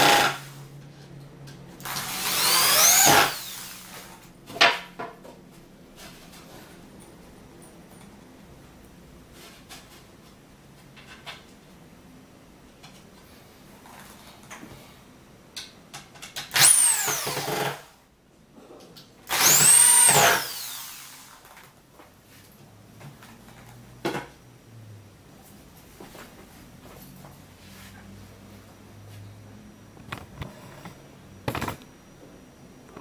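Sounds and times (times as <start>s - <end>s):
electric drill motor whining: 1.8s - 4.0s, 16.5s - 17.9s, 19.3s - 21.4s.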